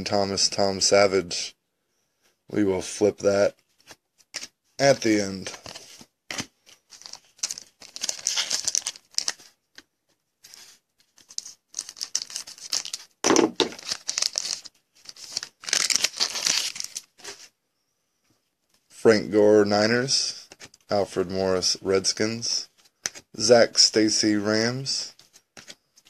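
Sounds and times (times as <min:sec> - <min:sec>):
foil wrapper crinkling: 0:06.9 - 0:09.4, 0:11.1 - 0:17.1
wrapper tearing: 0:06.9 - 0:09.5, 0:11.2 - 0:17.1.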